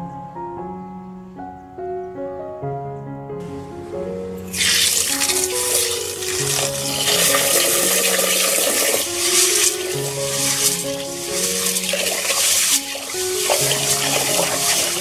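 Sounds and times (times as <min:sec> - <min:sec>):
soft piano music: 0:00.0 - 0:15.0
tap water pouring into a pot: 0:04.5 - 0:15.0.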